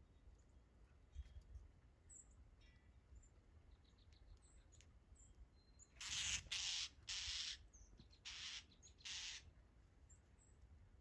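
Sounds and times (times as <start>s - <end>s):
mockingbirds giving harsh raspy calls: 5.9s - 9.6s.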